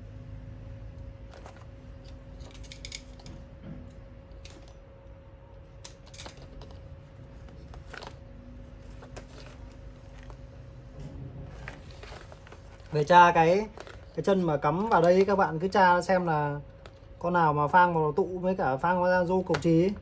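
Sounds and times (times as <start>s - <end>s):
faint steady hum: 0.0s - 20.0s
metal tools clicking and scraping: 2.0s - 3.4s, 5.8s - 6.8s.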